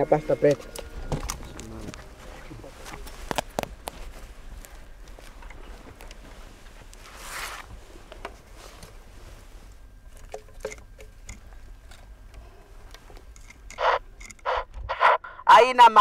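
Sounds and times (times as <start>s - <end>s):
scuffing and rustling on soil: 0.5s - 10.0s.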